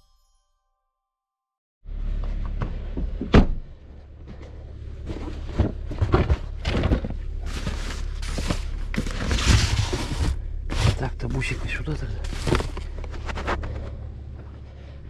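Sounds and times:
steady low rumble: 1.9 - 15.0
bags and clothing rustling: 5.0 - 15.0.

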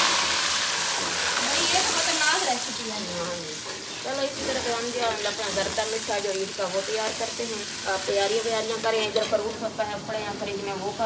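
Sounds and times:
ghee and water sizzling: 0.0 - 11.0
metal spoon scraping a wok: 3.5 - 5.8, 8.8 - 9.7.

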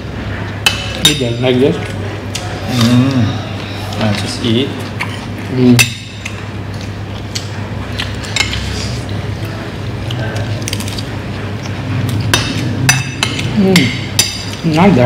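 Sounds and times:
steady low hum: 0.0 - 15.0
cutlery and dishes clinking: 12.1 - 14.6.

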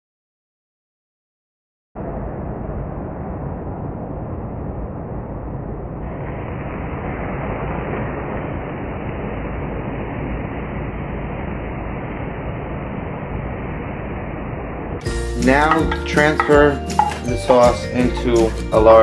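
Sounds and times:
milk boiling over hissing: 15.1 - 19.0.

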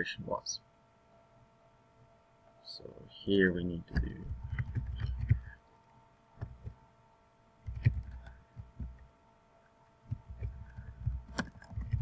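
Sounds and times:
faint electrical hum: 0.0 - 12.0
keyboard typing: 3.9 - 5.6, 7.6 - 9.1, 10.1 - 12.0.

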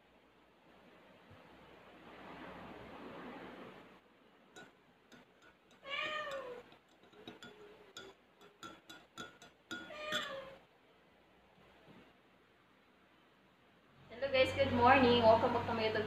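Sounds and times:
spoon clinking against glass mug: 4.6 - 10.6
cat meowing: 5.8 - 6.7, 9.8 - 10.6.

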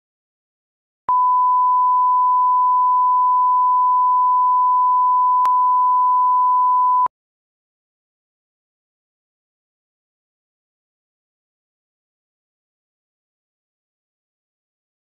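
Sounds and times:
steady reference tone beep: 1.1 - 7.1.

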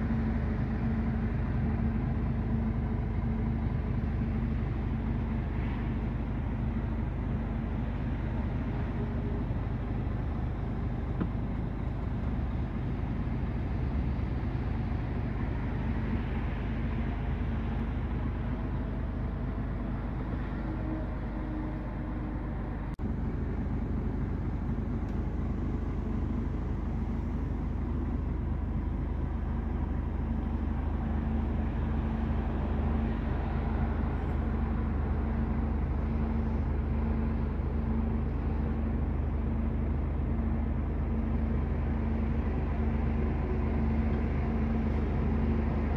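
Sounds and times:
diesel engine idling: 0.0 - 45.9.

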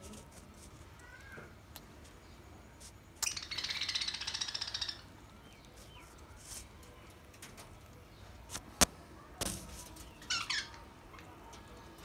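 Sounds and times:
budgerigars chirping: 3.2 - 5.1.

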